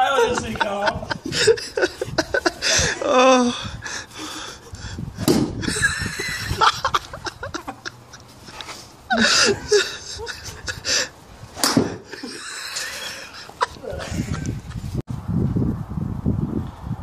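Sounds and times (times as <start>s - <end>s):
men murmuring: 0.0s - 5.0s, 5.6s - 11.2s, 11.9s - 14.7s
men laughing: 0.0s - 15.0s
golf club striking ball: 5.2s - 5.5s, 11.6s - 12.1s.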